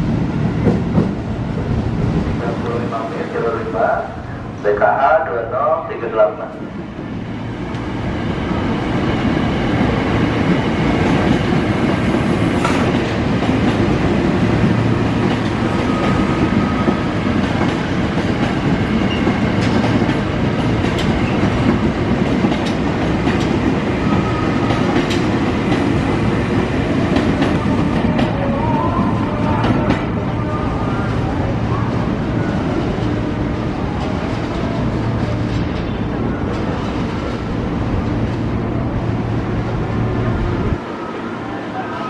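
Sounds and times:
train wheels rumbling: 0.0 - 42.0.

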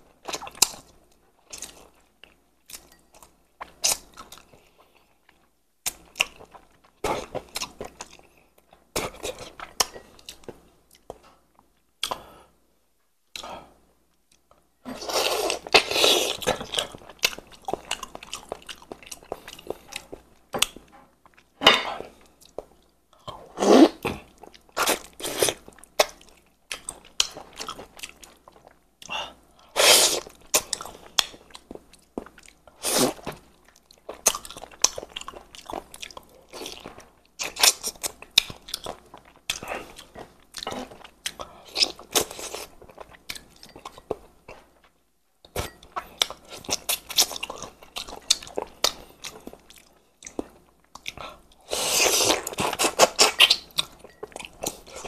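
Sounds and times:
person chewing and crunching bones: 14.3 - 55.0.

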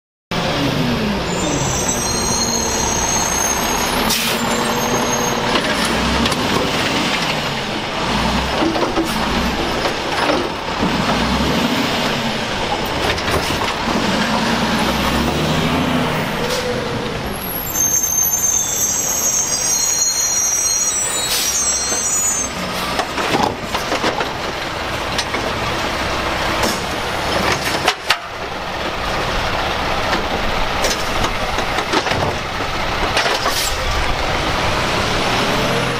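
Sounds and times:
garbage truck engine revving: 0.3 - 35.9
high squeals: 1.3 - 5.9, 16.2 - 23.0
air brake hisses: 3.3 - 4.6.

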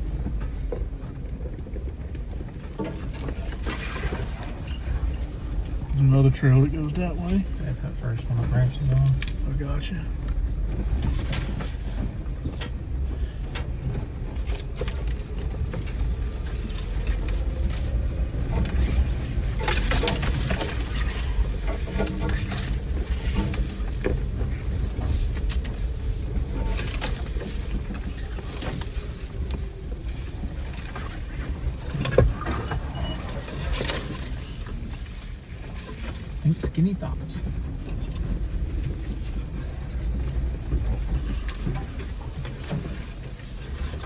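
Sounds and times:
vehicle engine rumble: 0.0 - 44.0
knocks and rattles: 10.2 - 44.0.

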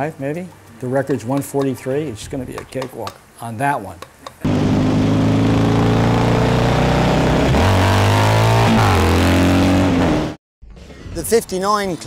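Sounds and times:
motorcycle engine accelerating: 4.4 - 10.4.

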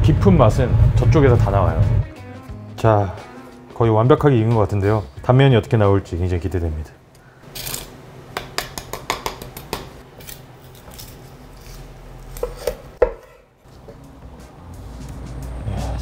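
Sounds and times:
knife tapping cutting board: 8.4 - 9.9, 12.4 - 13.4.

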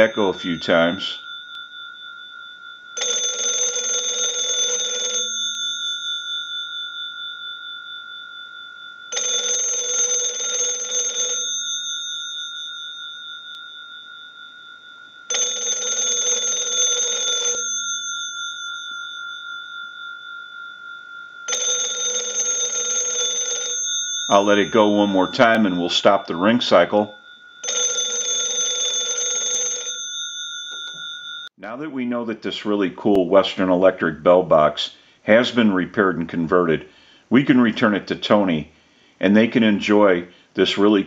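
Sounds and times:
telephone bell gongs ringing: 0.0 - 20.2, 21.4 - 31.5.

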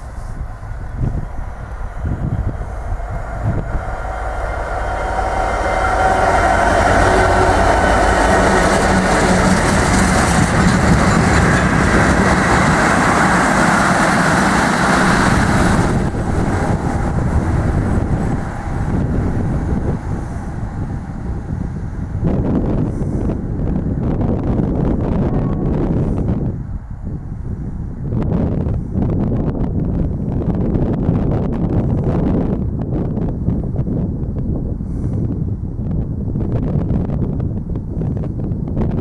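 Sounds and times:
train wheels running over rails: 0.0 - 25.1
diesel locomotive engine passing: 0.0 - 39.0.

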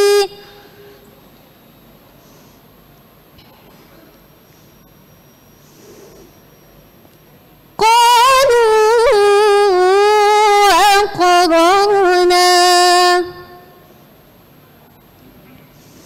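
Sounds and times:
woman reciting melodically: 0.0 - 0.8, 7.8 - 13.9.

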